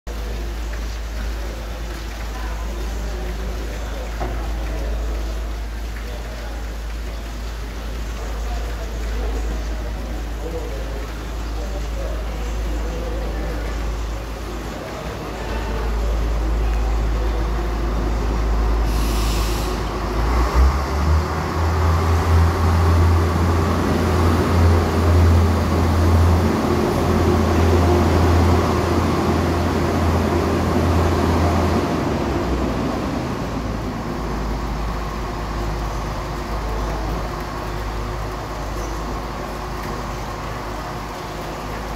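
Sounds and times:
diesel train engine droning: 0:00.1 - 0:41.9
short hiss: 0:18.8 - 0:19.9.

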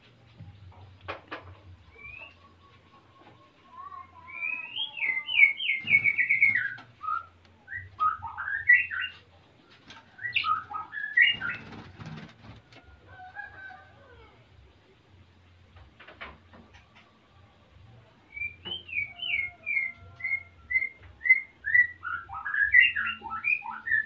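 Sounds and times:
bird singing whistled phrases: 0:04.2 - 0:09.2, 0:18.3 - 0:24.0.

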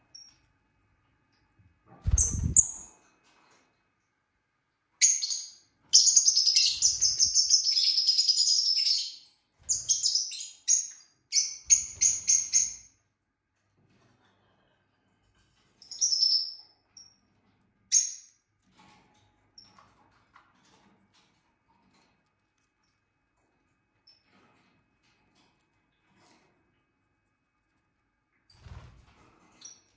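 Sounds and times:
lovebird chirping: 0:02.1 - 0:02.9, 0:05.0 - 0:12.9.

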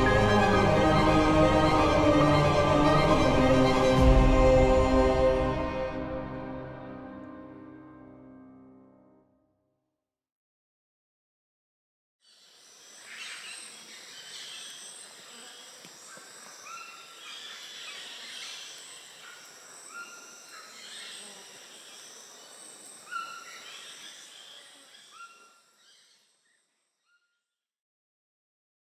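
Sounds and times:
high-pitched insect buzzing: 0:12.3 - 0:25.4
whistled bird calls: 0:12.9 - 0:27.4.

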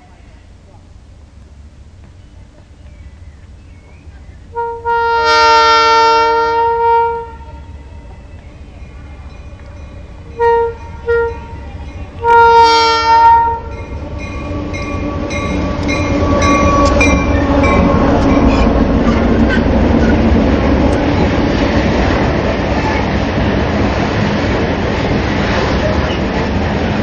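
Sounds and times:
train engine and wheel rumble: 0:00.0 - 0:27.0
locomotive horn: 0:04.5 - 0:08.6, 0:10.0 - 0:21.2
wheels clicking over rail joints: 0:07.4 - 0:12.6, 0:13.5 - 0:27.0.

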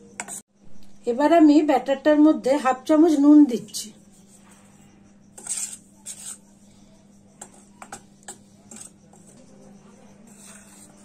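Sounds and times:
faint low hum: 0:00.0 - 0:11.0
spoon scraping steel bowl: 0:00.1 - 0:00.4, 0:03.9 - 0:11.0.

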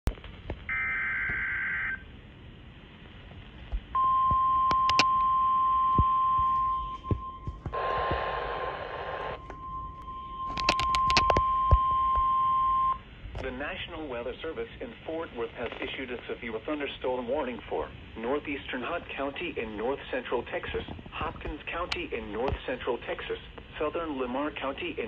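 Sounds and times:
steady warning alert tone: 0:04.0 - 0:07.8
sharp clicks: 0:04.7 - 0:05.3, 0:10.5 - 0:11.5
burst of noise: 0:07.5 - 0:09.5.

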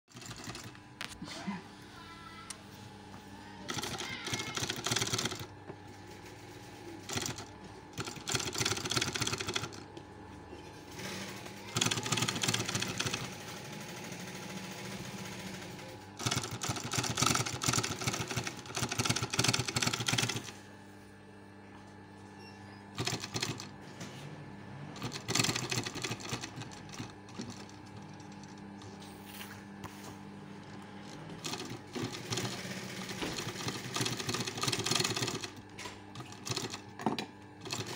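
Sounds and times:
sewing machine stitching: 0:00.1 - 0:01.6, 0:03.6 - 0:09.8, 0:10.7 - 0:20.6, 0:22.9 - 0:23.7, 0:24.9 - 0:29.2, 0:30.5 - 0:37.9.

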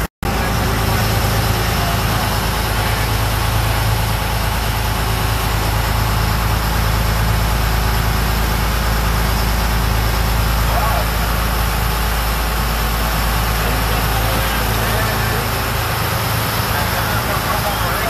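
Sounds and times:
boat engines humming: 0:00.0 - 0:18.0
churning wake: 0:00.0 - 0:18.0.

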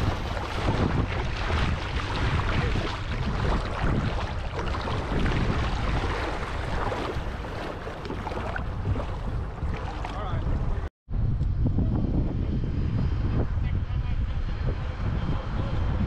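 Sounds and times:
water sloshing and splashing: 0:00.0 - 0:10.9
wind rumbling on microphone: 0:00.0 - 0:16.0.

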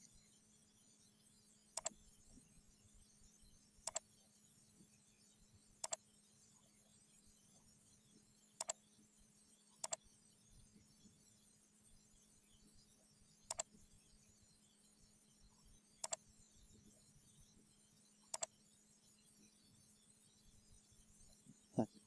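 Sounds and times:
faint steady hum: 0:00.0 - 0:22.0
computer mouse double clicks: 0:13.5 - 0:13.7.

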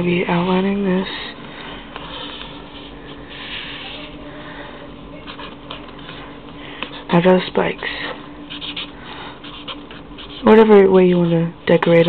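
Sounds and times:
steady low hum: 0:00.0 - 0:12.0
marker pen scratching on paper: 0:02.0 - 0:04.1, 0:05.2 - 0:07.8, 0:08.5 - 0:12.0.

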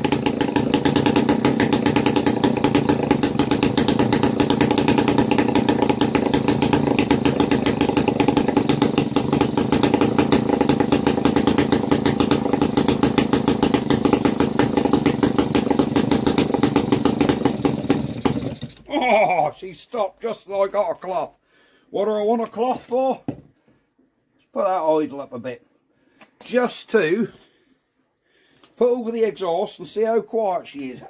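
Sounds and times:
two-stroke engine popping: 0:00.0 - 0:18.9.

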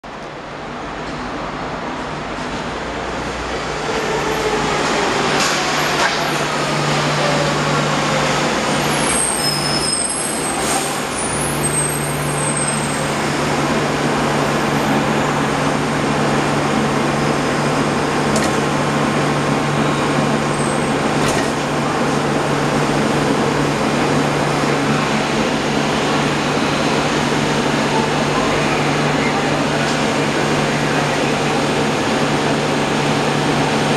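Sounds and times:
falling whine of train: 0:00.1 - 0:33.9
light rail train arriving: 0:00.1 - 0:33.9
train equipment humming: 0:13.2 - 0:33.9.

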